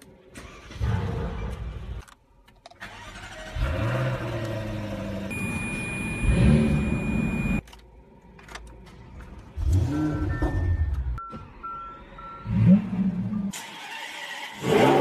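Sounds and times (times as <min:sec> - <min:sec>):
sports car engine starting: 0:02.8 - 0:07.6
dashboard chimes: 0:05.3 - 0:07.6.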